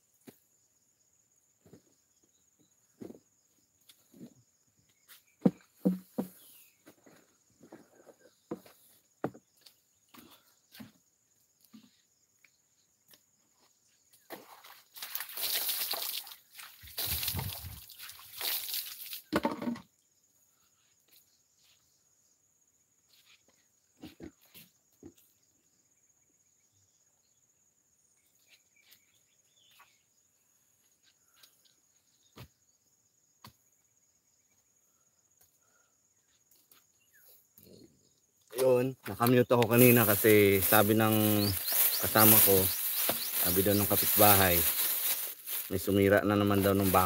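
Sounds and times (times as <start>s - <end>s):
insects droning: 0.0s - 47.0s
footsteps: 5.4s - 9.4s, 39.6s - 45.9s
rustling and scraping: 39.6s - 45.8s.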